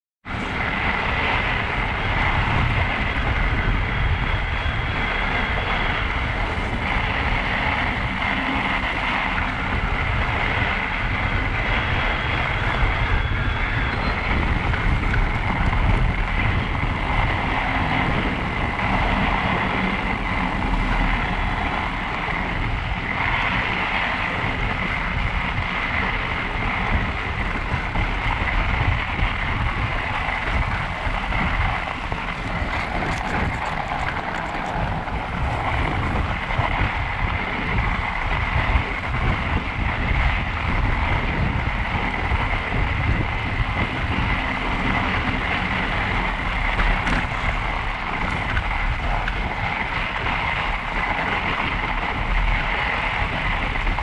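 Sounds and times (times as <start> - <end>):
wind buffeting microphone: 0.2 - 54.0.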